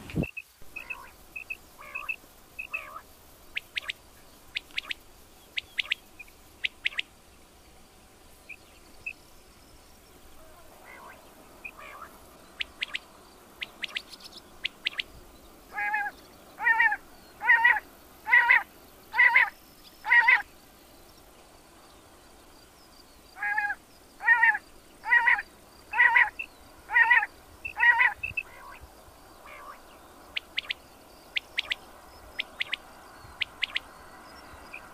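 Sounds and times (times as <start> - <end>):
quail calling: 0.0 - 5.0, 5.6 - 6.0, 6.6 - 7.1, 10.4 - 15.1, 15.7 - 20.5, 23.4 - 28.8, 29.4 - 31.8, 32.4 - 33.9
faint high chirps: 0.0 - 7.1, 24.6 - 34.9.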